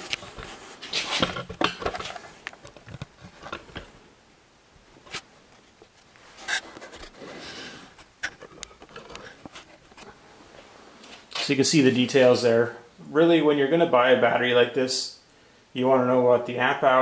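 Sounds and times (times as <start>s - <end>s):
rustling: 0.0s - 4.1s, 4.8s - 12.3s.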